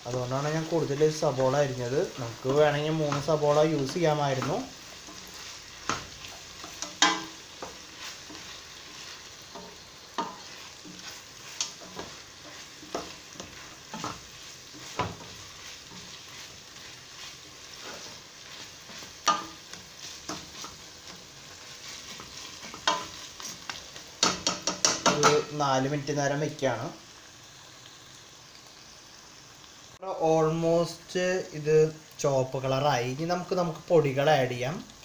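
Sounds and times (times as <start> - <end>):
onions sizzling in a pot: 0.0 - 35.0
spatula scraping a pot: 2.4 - 23.8.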